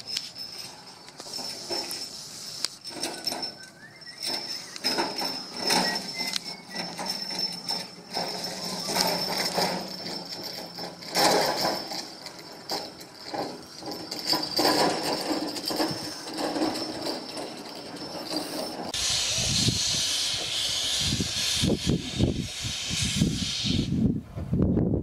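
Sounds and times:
steam locomotive chuffs and clanks: 0:00.8 - 0:24.0
steam hissing: 0:01.6 - 0:02.8, 0:18.4 - 0:24.1.

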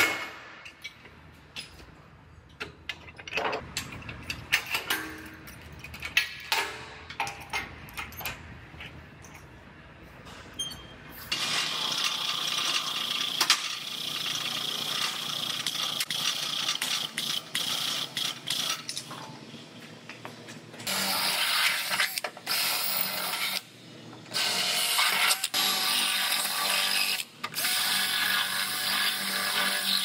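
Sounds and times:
cordless drill boring sheet steel: 0:24.4 - 0:30.0.

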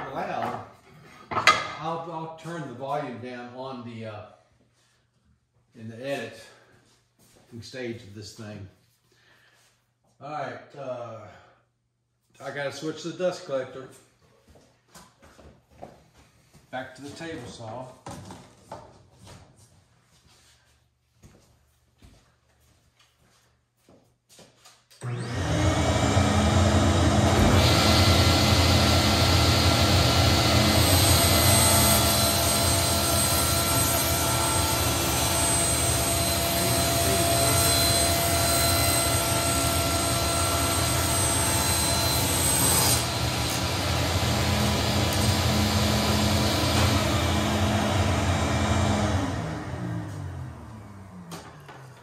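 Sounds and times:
saw blade cutting wood: 0:25.0 - 0:47.9
dust collector running: 0:25.0 - 0:52.0
table saw running: 0:25.0 - 0:52.0.

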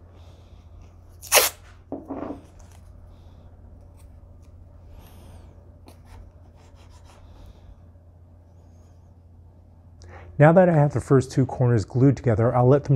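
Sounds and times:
steady low hum: 0:00.0 - 0:12.9
tape being handled: 0:01.2 - 0:01.7
tape ripping off roll: 0:01.2 - 0:01.7.

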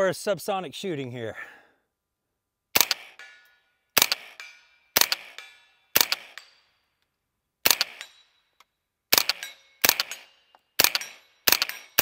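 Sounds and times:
suppressed rifle shots: 0:02.7 - 0:03.3, 0:04.0 - 0:06.6, 0:07.6 - 0:08.3, 0:09.1 - 0:12.0
steel targets ringing: 0:03.1 - 0:03.8.

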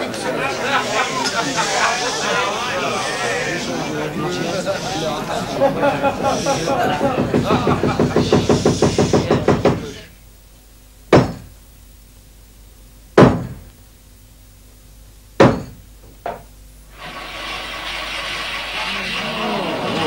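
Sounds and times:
soft murmur: 0:00.0 - 0:10.2, 0:18.7 - 0:20.0
knocks on wooden stage floor: 0:11.1 - 0:11.5, 0:13.2 - 0:13.7, 0:15.4 - 0:16.5.

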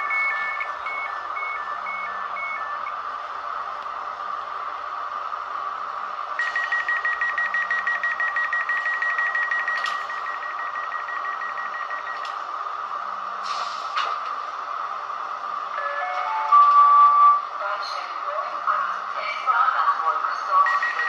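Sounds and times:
rapid high beeping: 0:00.0 - 0:02.9, 0:06.4 - 0:12.2.

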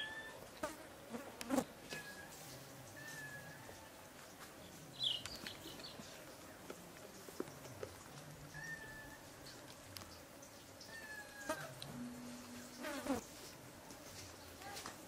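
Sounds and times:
faint high bird calls: 0:01.9 - 0:04.0, 0:08.5 - 0:09.6.

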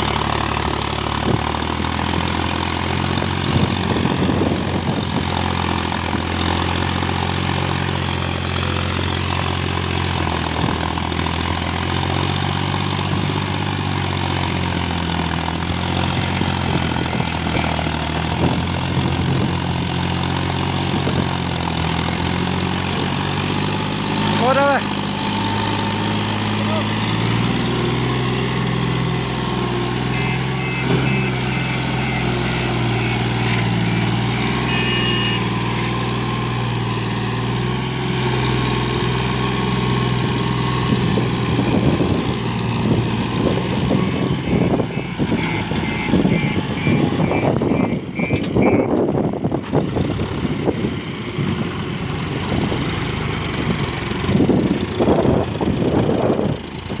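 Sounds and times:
tractor diesel engine under load: 0:00.0 - 0:57.0
high-pitched electronic beeping: 0:44.0 - 0:48.9.

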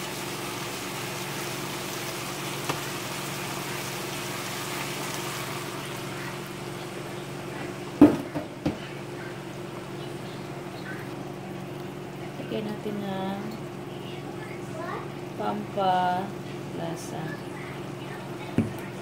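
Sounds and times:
stew simmering hiss: 0:00.0 - 0:08.0.

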